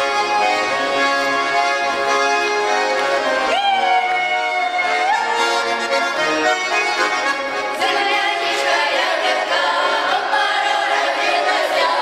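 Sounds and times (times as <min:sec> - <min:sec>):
button accordion folk tune: 0:00.0 - 0:12.0
people singing: 0:07.8 - 0:12.0.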